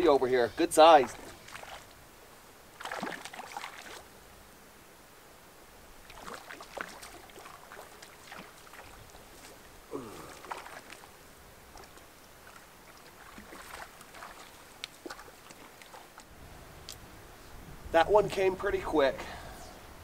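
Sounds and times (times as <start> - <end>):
fish splashing in water: 1.0 - 2.0, 2.7 - 4.1, 6.0 - 16.3.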